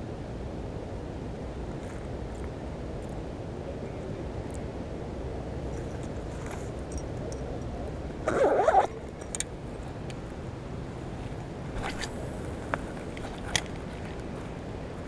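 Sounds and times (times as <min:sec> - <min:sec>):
low rumble of wind: 0:00.0 - 0:15.0
zipper pulled shut: 0:08.3 - 0:09.0, 0:11.8 - 0:12.3.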